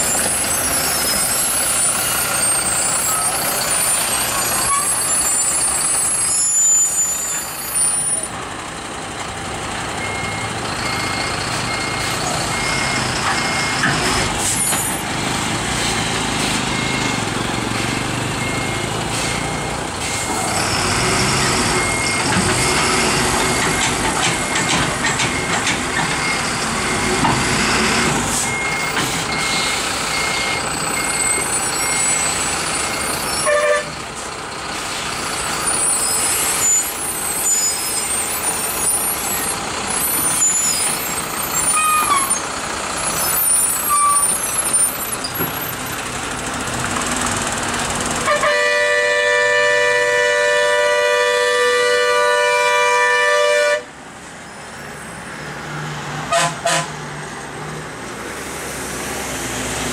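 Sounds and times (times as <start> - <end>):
reversing alarm beeping: 0.0 - 8.2, 10.0 - 14.1, 16.4 - 34.0, 35.3 - 42.4
air brakes hissing: 0.0 - 8.3, 14.3 - 15.1, 19.0 - 20.7, 27.6 - 30.1, 30.8 - 42.4
truck diesel engine running: 0.0 - 59.9.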